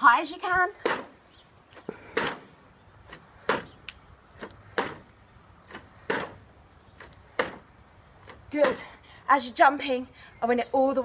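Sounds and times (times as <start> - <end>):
sneakers landing on wooden deck: 0.8 - 1.2, 2.1 - 2.5, 3.1 - 3.8, 4.4 - 8.9.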